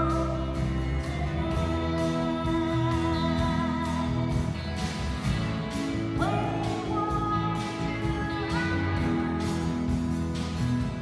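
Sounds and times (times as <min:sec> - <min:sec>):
lead vocal singing: 0:00.0 - 0:04.5
live rock band playing: 0:00.0 - 0:11.0.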